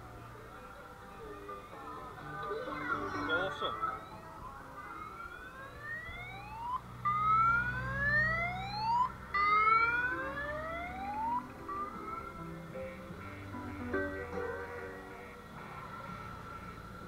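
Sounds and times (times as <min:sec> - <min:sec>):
low engine hum: 0:00.0 - 0:17.0
whoop siren sweeps: 0:04.8 - 0:12.1.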